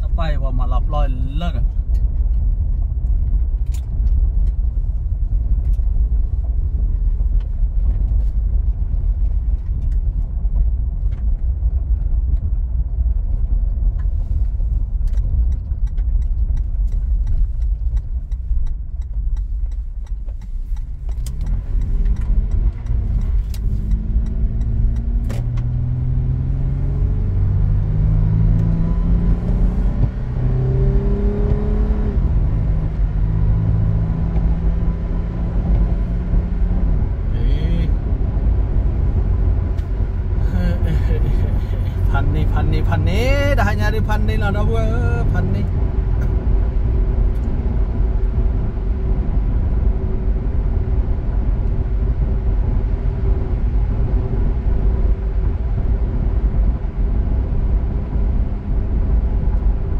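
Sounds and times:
vehicle engine rumbling: 0.0s - 59.9s
engine revving up: 21.3s - 36.6s.

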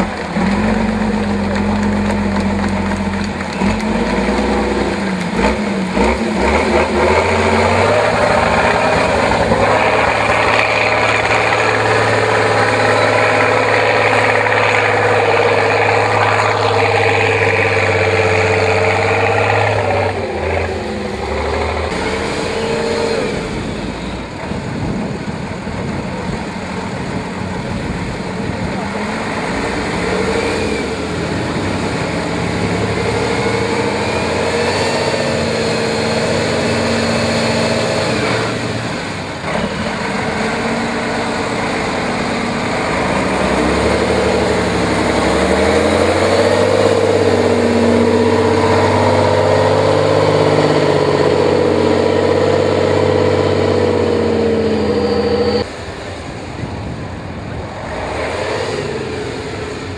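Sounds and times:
truck diesel engine under load: 0.0s - 59.9s.

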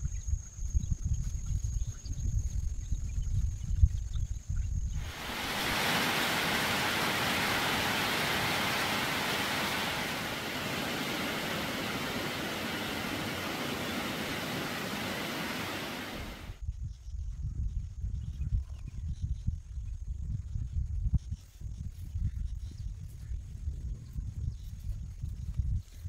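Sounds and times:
heavy rain on leaves: 5.0s - 16.5s
low rumble: 5.0s - 16.6s.

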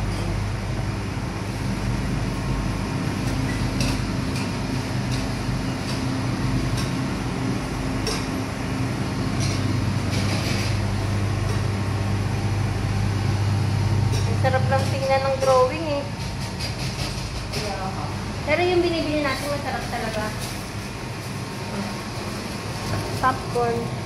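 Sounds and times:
low machine hum: 0.0s - 24.0s.

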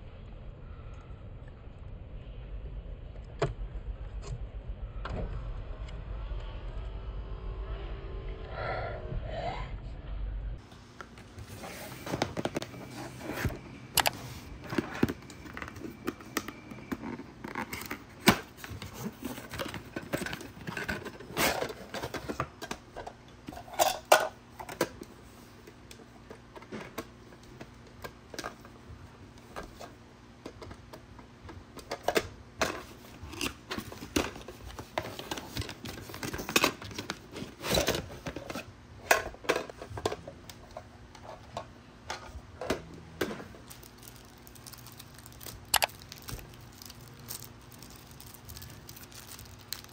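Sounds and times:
plastic items clicking and scraping: 11.6s - 28.8s, 29.4s - 49.9s.

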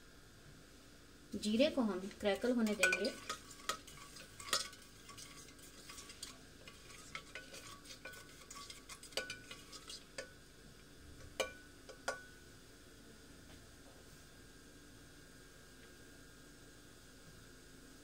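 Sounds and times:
seeds crackling in hot oil: 0.1s - 12.4s
spatula scraping and clinking pot: 2.1s - 10.4s.

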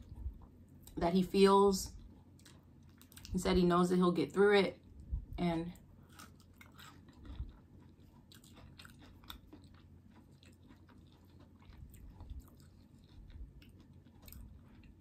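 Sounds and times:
faint chewing of food: 0.0s - 1.0s, 1.9s - 3.4s, 4.8s - 15.0s.

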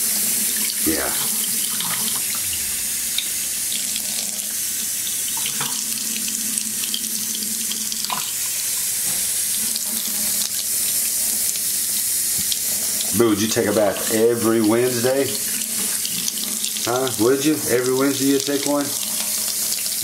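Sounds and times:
tap water splashing into metal sink: 5.3s - 6.0s, 7.6s - 10.6s.

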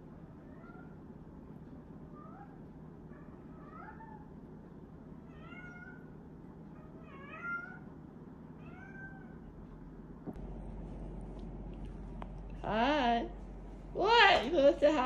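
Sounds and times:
cat meowing: 5.3s - 6.1s, 6.9s - 7.9s, 8.6s - 9.4s.

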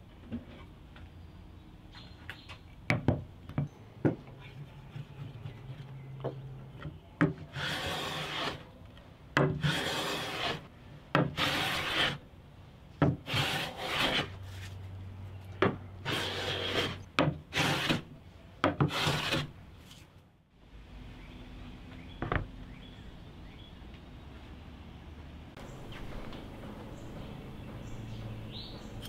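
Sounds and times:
hand plane on wooden board: 7.2s - 8.6s, 9.4s - 12.2s, 13.0s - 14.4s, 16.0s - 18.1s, 18.7s - 19.5s.

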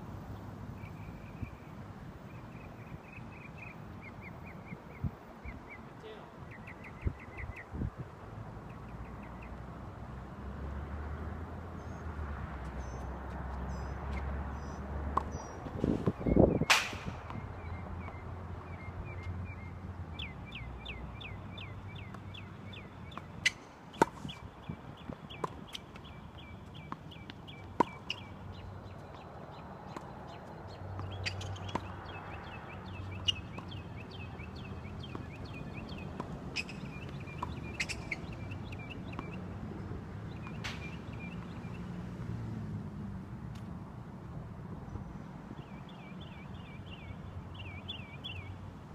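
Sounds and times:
small birds chirping: 0.8s - 7.8s, 17.3s - 41.9s, 44.9s - 48.6s
tennis ball hits and bounces: 12.6s - 18.2s, 22.0s - 24.4s, 25.0s - 29.3s, 29.9s - 39.5s, 40.2s - 41.7s.

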